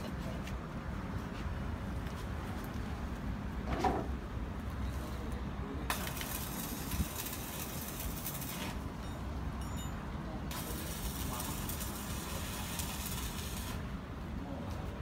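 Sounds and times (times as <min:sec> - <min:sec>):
light knocks and clinks: 0:09.0 - 0:10.0.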